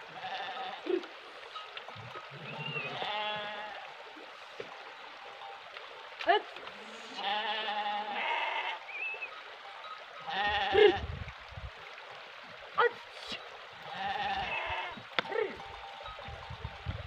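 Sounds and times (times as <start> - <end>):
sheep bleating: 0.1 - 0.9, 2.4 - 3.8, 7.1 - 8.9, 10.2 - 11.1, 13.8 - 15.7.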